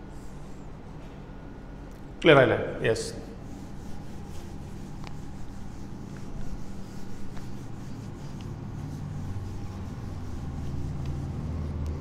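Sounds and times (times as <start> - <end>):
low steady hum: 0.0 - 12.0
duster rubbing on whiteboard: 3.3 - 12.0.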